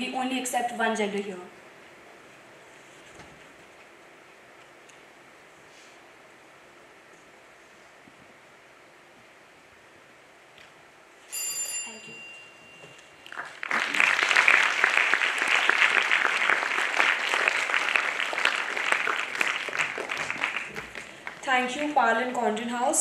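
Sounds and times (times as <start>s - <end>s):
small bell ringing: 11.3s - 13.2s
audience applause: 13.2s - 22.0s.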